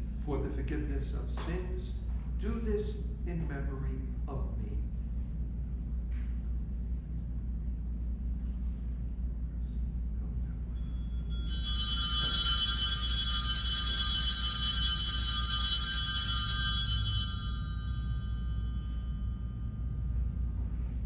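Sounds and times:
altar bells ringing: 10.8s - 20.7s.

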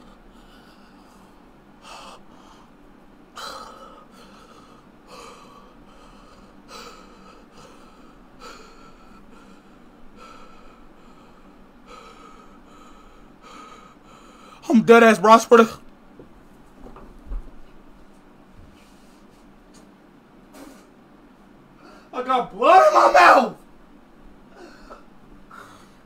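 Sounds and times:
man gasping breaths: 0.0s - 2.8s, 3.4s - 14.7s.

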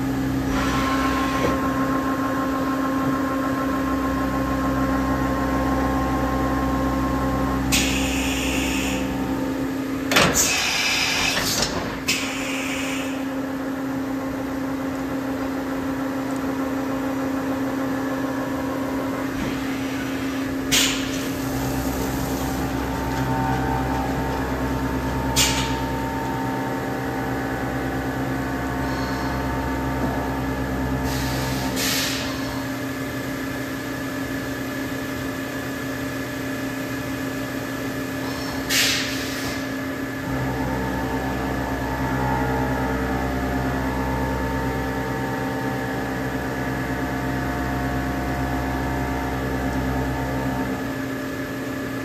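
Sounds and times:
machine mechanical hum: 0.0s - 52.0s
deeper drive hum: 21.2s - 31.4s, 40.3s - 51.0s.

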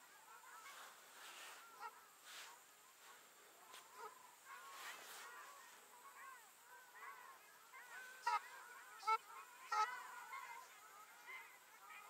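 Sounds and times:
waterfowl calling: 0.0s - 12.0s.

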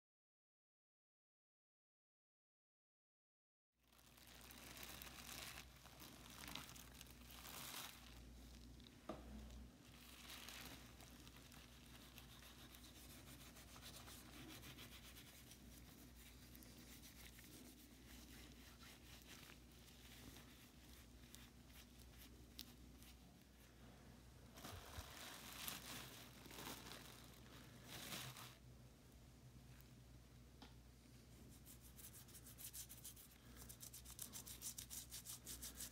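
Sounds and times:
plastic bag crinkling: 3.9s - 9.0s, 9.8s - 15.0s, 24.5s - 28.6s.

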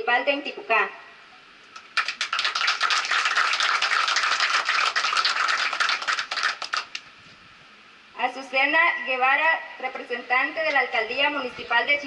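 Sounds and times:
audience applauding: 1.8s - 7.0s.

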